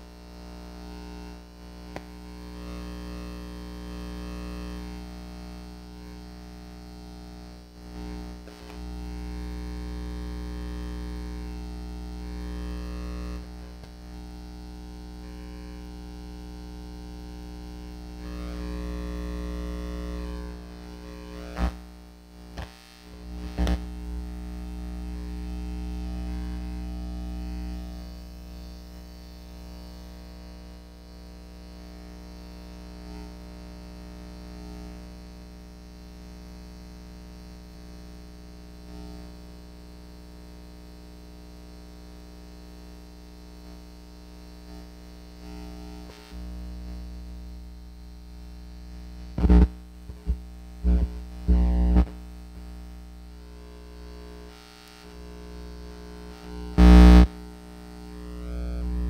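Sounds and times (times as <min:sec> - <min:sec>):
low hum of held tones: 0:00.0 - 0:35.0, 0:41.3 - 0:59.0.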